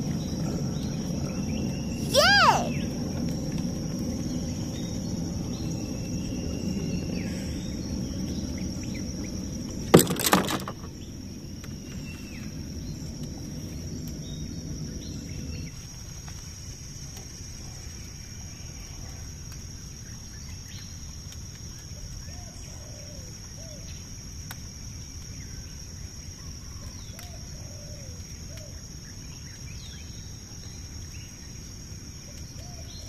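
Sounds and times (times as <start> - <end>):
clatter of sharp knocks: 9.9 - 10.9.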